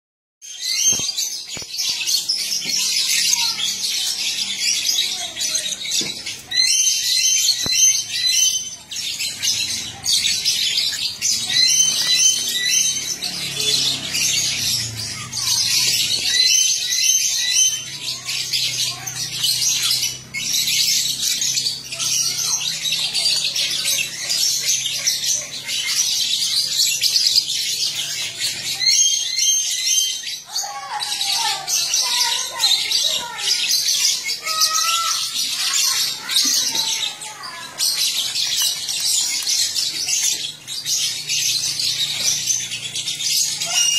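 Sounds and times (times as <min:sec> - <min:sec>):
lovebirds chattering: 0:00.4 - 0:43.9.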